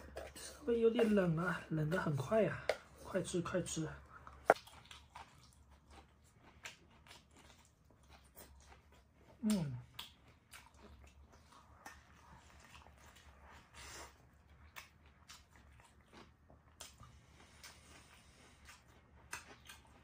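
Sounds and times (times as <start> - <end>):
chewing: 4.0 - 20.0.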